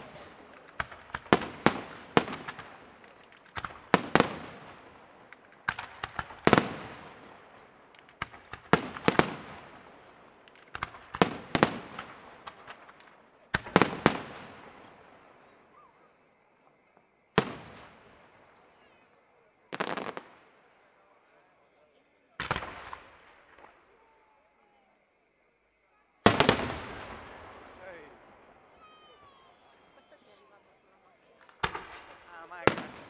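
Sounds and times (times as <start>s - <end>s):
firework shells bursting: 0.0s - 15.7s, 26.2s - 30.3s, 31.4s - 33.0s.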